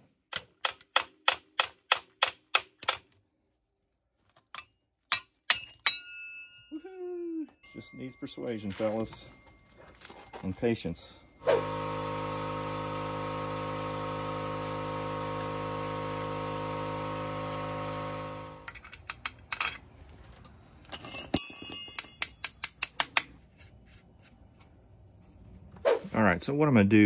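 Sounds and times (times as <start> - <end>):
loud steady hum: 11.4 - 18.8
metallic clinks: 20.9 - 23.7.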